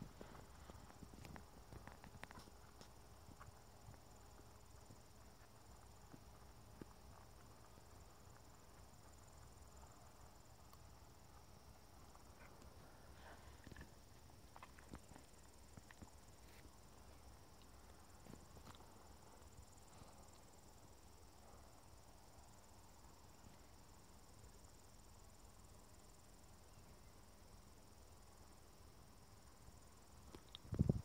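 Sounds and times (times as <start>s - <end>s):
steady high-pitched hiss: 0.0s - 31.0s
faint ticks: 0.1s - 20.6s, 30.2s - 31.0s.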